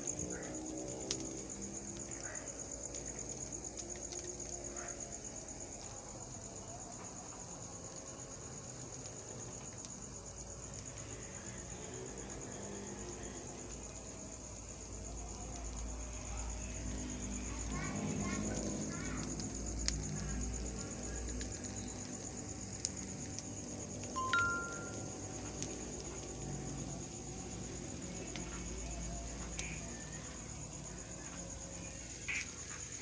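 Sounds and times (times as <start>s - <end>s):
insect trilling: 10.1s - 33.0s.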